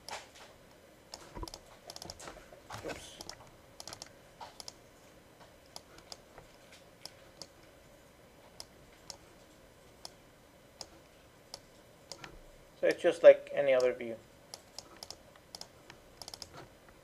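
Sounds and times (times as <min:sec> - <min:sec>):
faint computer mouse clicks: 0:14.5 - 0:16.5.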